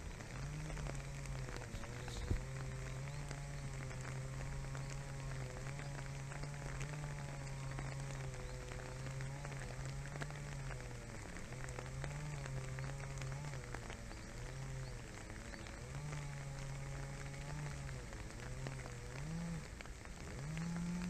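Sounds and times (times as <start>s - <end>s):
animal rooting in grass: 0.0s - 21.0s
steady low hum: 0.0s - 21.0s.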